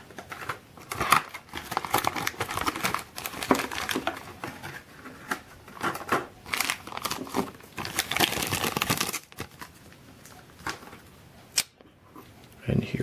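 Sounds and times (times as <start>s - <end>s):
plastic bag crinkling: 0.2s - 4.8s, 5.7s - 11.0s.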